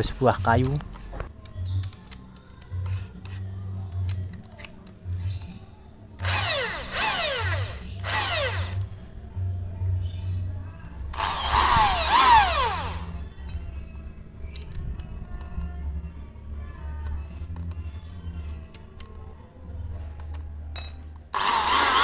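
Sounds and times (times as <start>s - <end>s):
electric drill motor whining: 6.2s - 8.8s, 11.2s - 13.1s, 21.4s - 22.0s.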